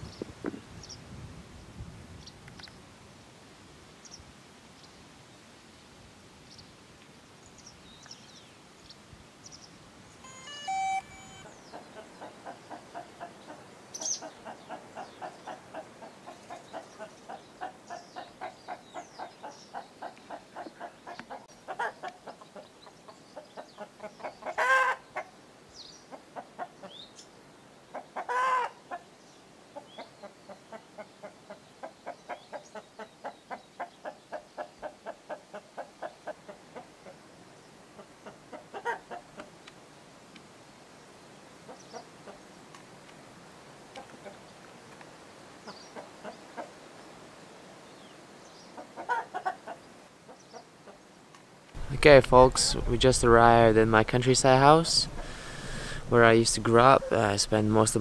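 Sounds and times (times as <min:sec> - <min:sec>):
small birds chirping: 0:06.4 - 0:36.3, 0:44.0 - 0:58.0.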